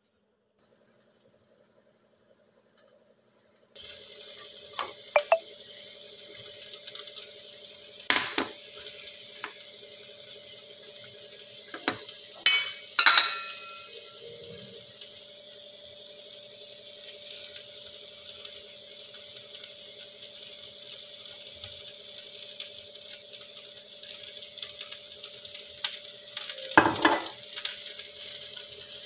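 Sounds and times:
food sizzling in oil: 0:00.6 - 0:29.0
steel bowl clinking against pan: 0:11.8 - 0:14.2.

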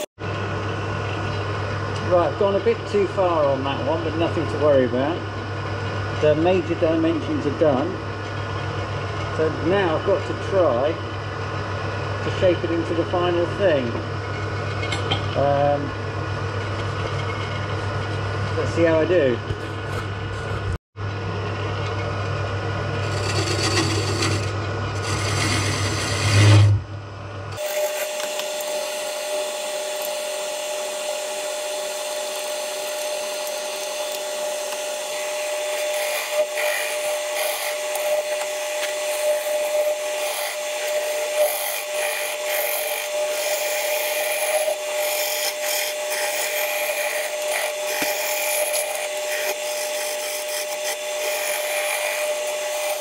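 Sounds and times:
deep hum: 0:19.8 - 0:27.6
tool scraping wood on lathe: 0:23.0 - 0:26.8, 0:27.6 - 0:28.9, 0:29.8 - 0:53.0.

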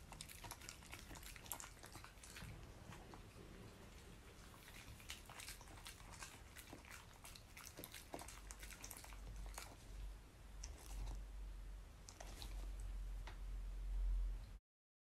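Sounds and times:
dog chewing food: 0:00.0 - 0:11.2, 0:12.0 - 0:13.0.

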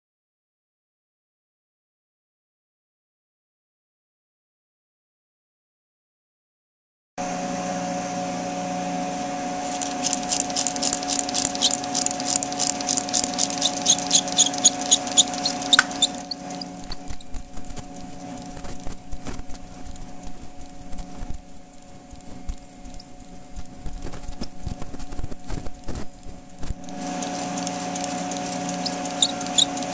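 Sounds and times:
ultrasonic drill bit humming: 0:09.6 - 0:29.9
faint clicks: 0:09.7 - 0:19.0.

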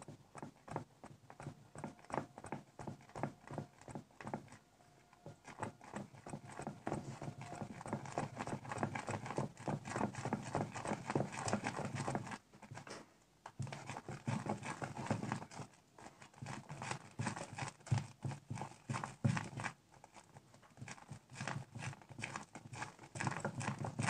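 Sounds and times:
slime squelching when stirred: 0:00.0 - 0:24.0.

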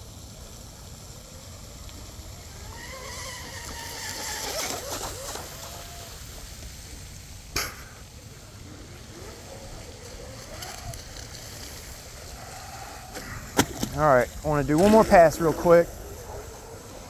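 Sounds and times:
water spray hiss: 0:00.0 - 0:17.0.

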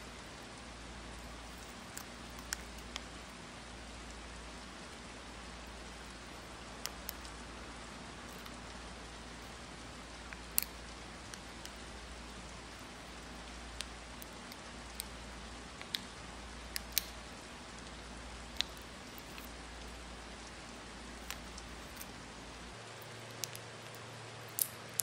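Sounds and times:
steady hiss: 0:00.0 - 0:25.0.

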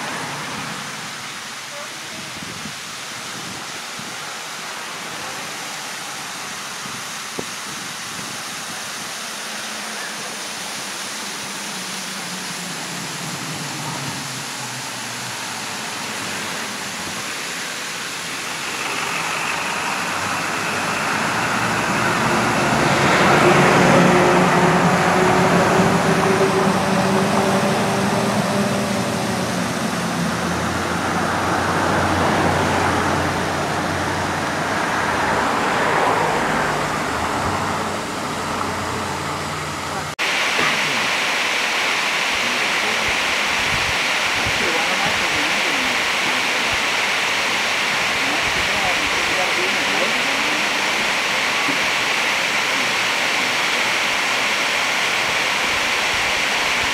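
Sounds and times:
waterfall rushing: 0:00.0 - 0:56.9
vehicle passing on road: 0:12.4 - 0:41.2.

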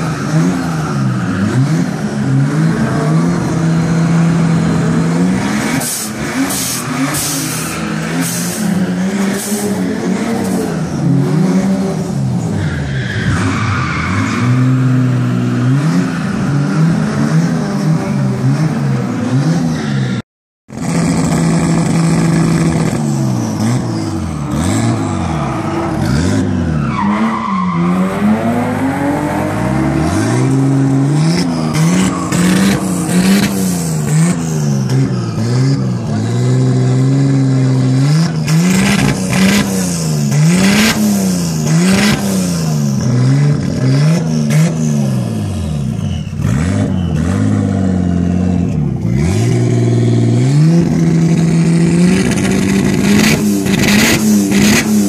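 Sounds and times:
car engine revving: 0:20.7 - 0:55.0.

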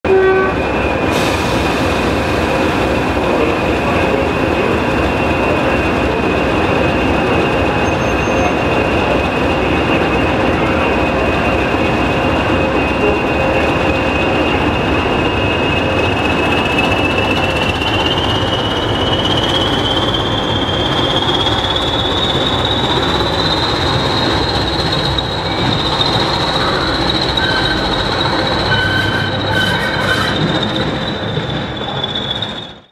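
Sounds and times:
turbocharger whistle: 0:27.1 - 0:31.2.

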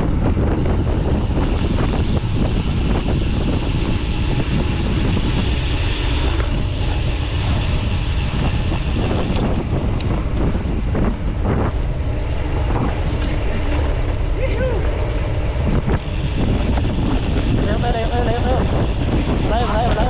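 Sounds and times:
wind rushing over microphone: 0:00.0 - 0:20.0.

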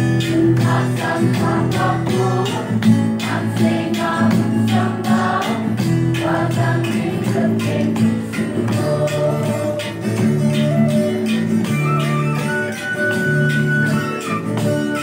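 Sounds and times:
guitar: 0:00.0 - 0:15.0
group singing: 0:00.1 - 0:11.4.

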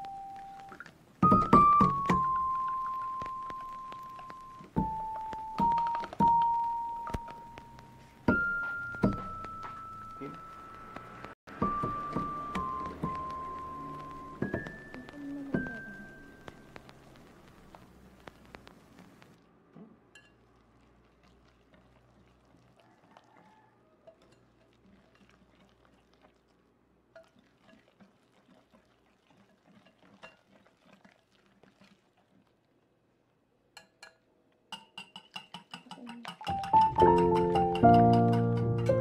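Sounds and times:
whisk scraping glass bowl: 0:27.2 - 0:32.3.

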